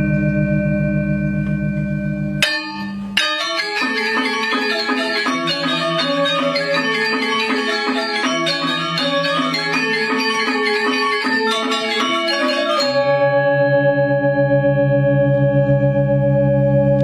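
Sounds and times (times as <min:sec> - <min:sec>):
gamelan ensemble playing: 0:02.2 - 0:15.7.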